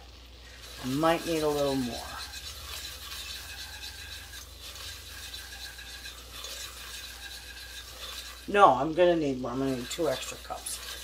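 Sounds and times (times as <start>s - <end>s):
wire whisk scraping a pot: 0.4s - 11.0s.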